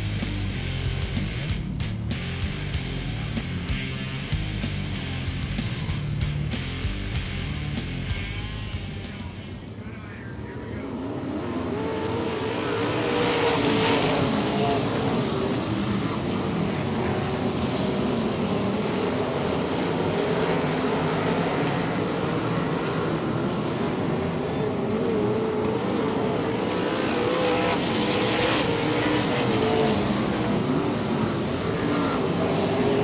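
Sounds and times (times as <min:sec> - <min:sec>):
race car engines at speed: 0:00.0 - 0:33.0.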